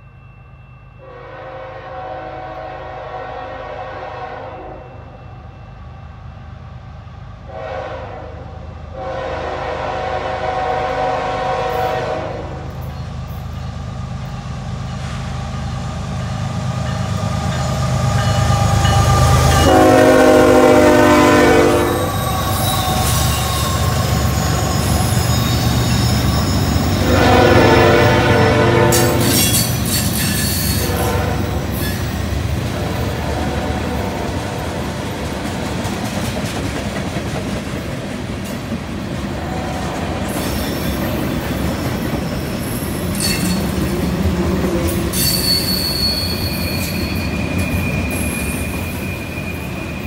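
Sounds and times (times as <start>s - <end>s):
train air horn blasts: 1.0s - 5.2s, 7.5s - 12.8s, 18.2s - 25.8s, 27.0s - 29.7s, 30.6s - 32.0s, 32.7s - 34.9s
train wheels on rails: 3.8s - 50.0s
locomotive engines rumbling: 8.7s - 50.0s.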